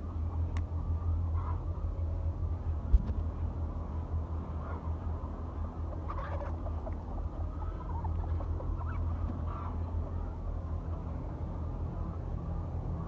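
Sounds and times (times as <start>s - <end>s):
steady low hum: 0.0s - 13.0s
hens clucking: 5.9s - 9.8s.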